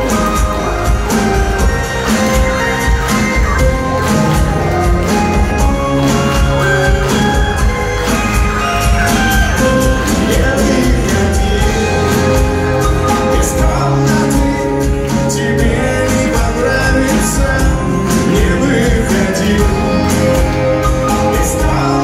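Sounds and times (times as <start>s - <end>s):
live rock band music: 0.0s - 22.0s
steady drum beat: 0.0s - 22.0s
person singing: 8.8s - 22.0s.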